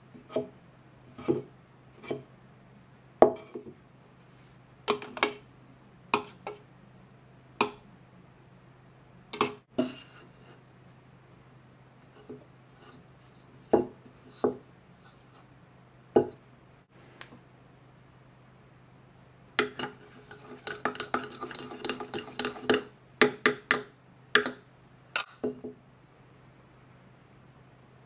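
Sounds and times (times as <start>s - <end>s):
plastic spoon clattering in bowl: 19.6s - 23.7s.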